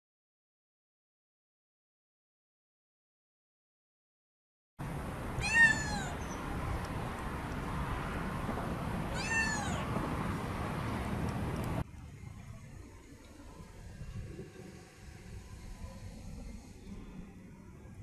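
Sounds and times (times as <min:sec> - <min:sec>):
outdoor background noise: 0:04.8 - 0:18.0
kitten meowing: 0:05.4 - 0:06.4, 0:09.1 - 0:09.9.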